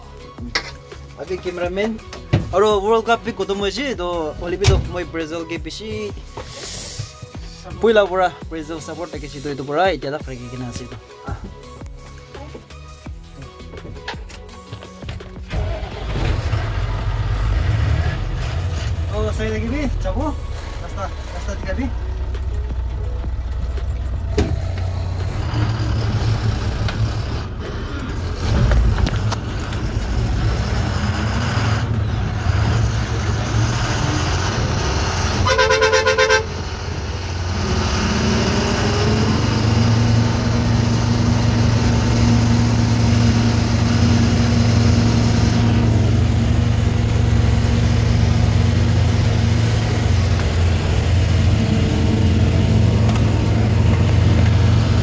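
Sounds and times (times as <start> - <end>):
truck engine running: 15.2 - 55.0
truck horn: 33.7 - 38.6.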